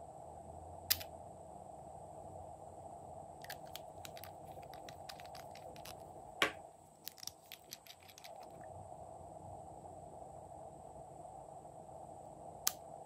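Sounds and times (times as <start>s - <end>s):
glass bottles and caps clicking: 3.5s - 6.0s, 7.1s - 8.6s.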